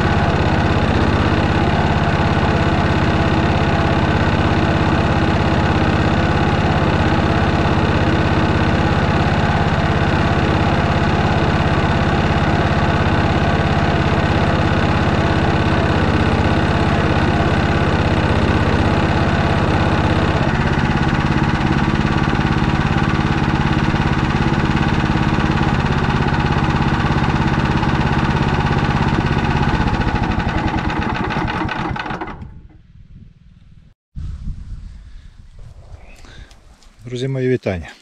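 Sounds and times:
tractor engine running: 0.0 - 33.9.

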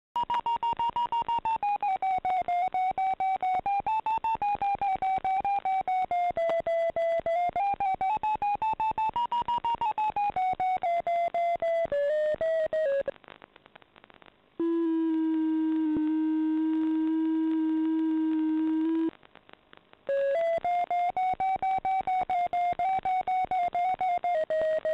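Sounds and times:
electronic variometer beeps: 0.2 - 13.1.

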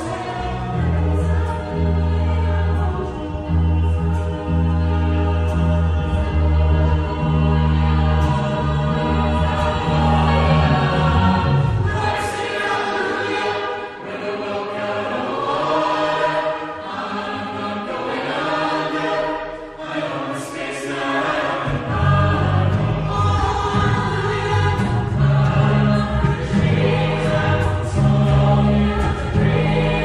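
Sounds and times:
choir singing: 0.0 - 30.0
sustained low bass notes: 0.2 - 12.2, 21.7 - 30.0.

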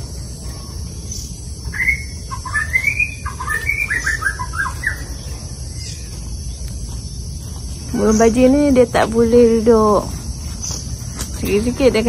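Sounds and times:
low background rumble: 0.0 - 12.0
budgerigars chirping: 0.4 - 9.1.

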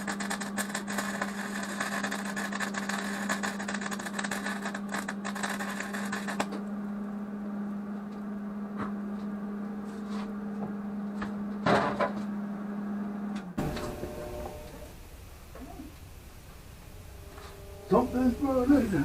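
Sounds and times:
welding arc crackling: 0.0 - 6.6, 13.6 - 19.0
generator humming: 4.6 - 19.0.

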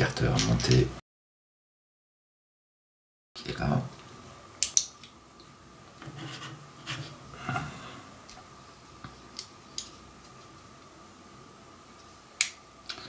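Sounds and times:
soft rubbing and handling: 6.0 - 7.2.

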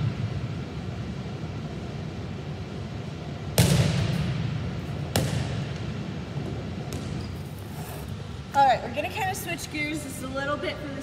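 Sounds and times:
sharp impacts echoing in gym: 0.0 - 1.0, 3.3 - 8.5
steady low hum: 0.0 - 11.0.

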